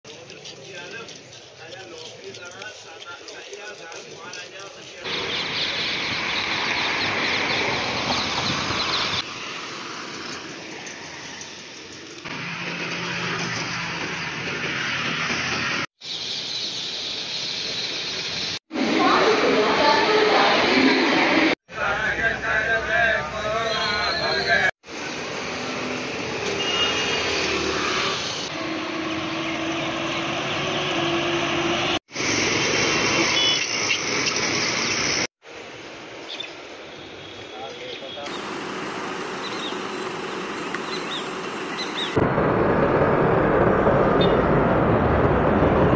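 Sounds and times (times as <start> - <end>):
city street traffic roar: 0.1 - 35.9, 36.6 - 45.9
faint engine hum: 38.3 - 42.1.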